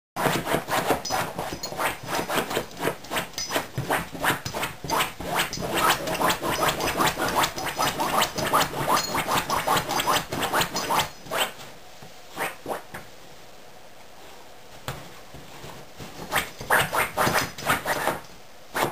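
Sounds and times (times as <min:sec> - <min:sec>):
puppy scratching and snuffling: 0:00.2 - 0:11.6, 0:16.0 - 0:18.2.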